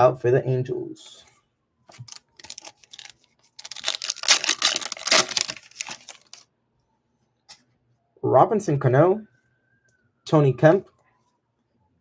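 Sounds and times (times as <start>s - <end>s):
wrapper tearing and crinkling: 1.9s - 6.4s.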